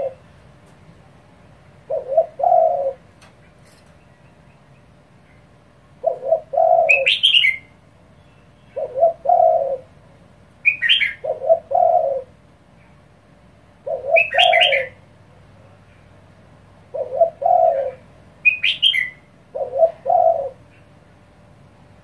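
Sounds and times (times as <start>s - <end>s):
dove cooing: 0.0s - 0.3s, 1.8s - 4.0s, 5.9s - 7.7s, 8.6s - 10.0s, 10.6s - 12.4s, 13.8s - 15.1s, 16.8s - 20.8s.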